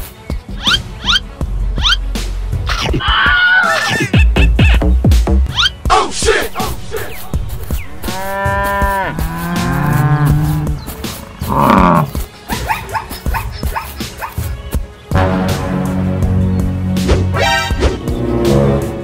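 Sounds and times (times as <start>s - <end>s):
cattle mooing: 8.0s - 10.8s, 11.4s - 12.2s.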